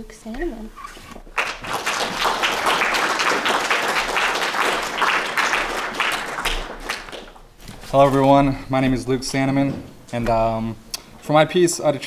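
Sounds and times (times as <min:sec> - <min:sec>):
audience applauding: 0:01.2 - 0:07.5.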